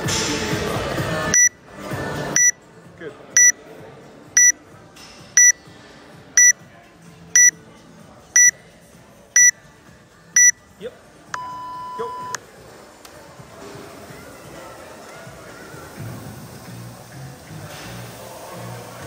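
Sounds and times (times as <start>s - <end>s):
timer beeping: 1.4s - 1.6s, 2.4s - 2.6s, 3.4s - 3.6s, 5.4s - 5.6s, 7.4s - 7.6s, 9.4s - 9.6s, 10.4s - 10.6s.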